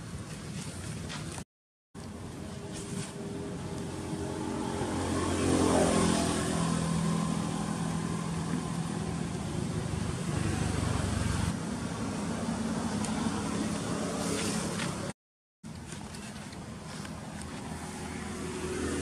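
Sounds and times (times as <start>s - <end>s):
vehicle engine passing by: 2.4s - 15.1s, 17.6s - 19.0s.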